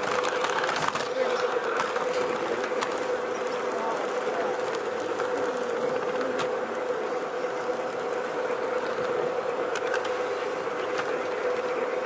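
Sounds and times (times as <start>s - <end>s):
model train motor humming: 0.0s - 12.0s.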